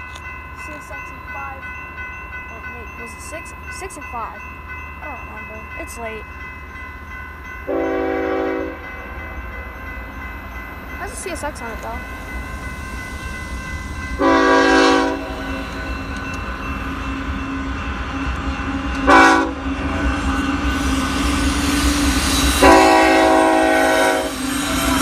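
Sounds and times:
locomotive air horn blasts: 7.7s - 8.8s, 14.2s - 15.4s, 19.0s - 19.6s, 22.6s - 24.4s.

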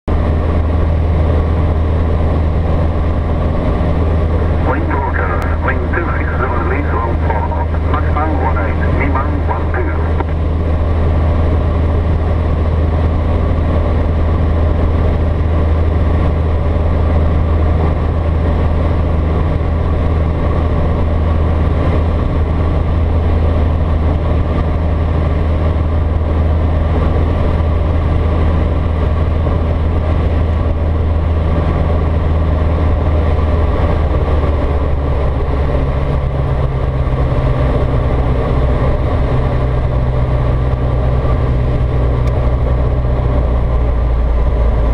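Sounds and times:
aeroplane engine drone: 0.0s - 44.9s.

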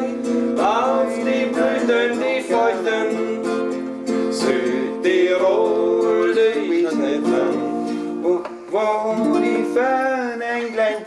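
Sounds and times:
acoustic guitar strumming: 0.0s - 11.0s
people singing folk song: 0.0s - 11.0s.

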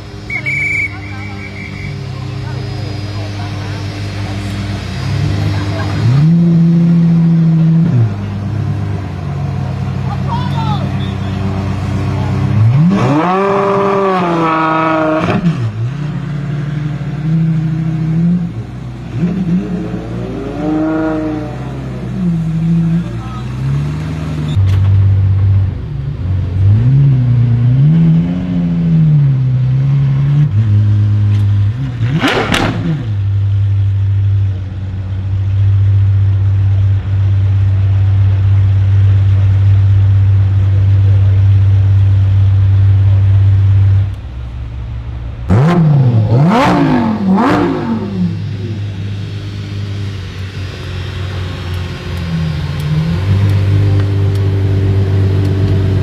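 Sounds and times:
car engine idling: 0.0s - 13.2s, 32.6s - 56.0s
engine revving: 0.0s - 25.2s, 25.8s - 35.6s, 36.3s - 56.0s.

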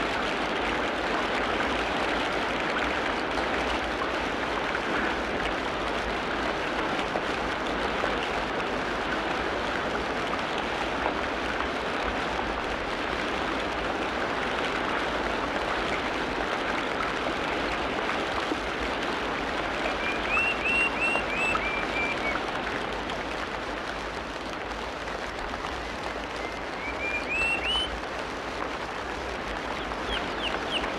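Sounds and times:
running water rushing: 0.0s - 30.9s
high chirps: 26.4s - 27.9s.

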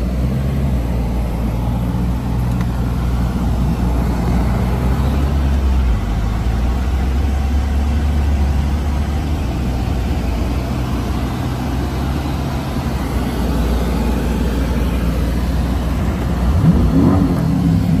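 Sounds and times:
car engine idling and revving: 0.0s - 18.0s.

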